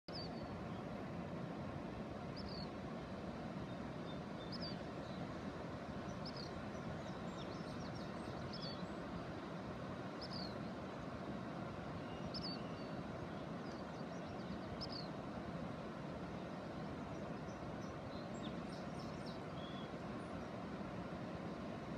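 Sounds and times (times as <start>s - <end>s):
bird chirping: 0.1s - 0.5s, 4.1s - 5.2s, 6.2s - 8.9s, 12.0s - 12.9s, 13.6s - 15.1s, 17.8s - 19.9s.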